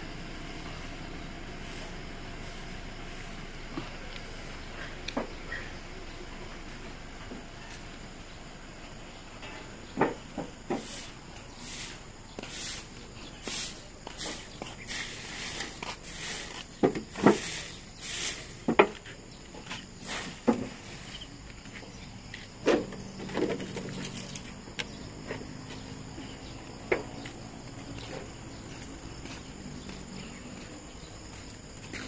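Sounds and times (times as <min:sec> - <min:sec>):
insects chirping: 0:00.0 - 0:32.0
broom sweeping dry leaves: 0:00.6 - 0:05.0, 0:10.7 - 0:24.6.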